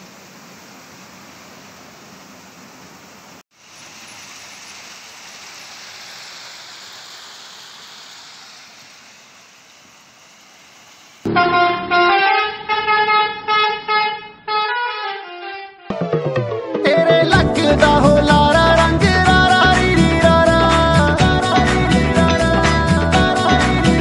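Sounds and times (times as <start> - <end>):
loud music with stepping melody: 15.9 - 24.0.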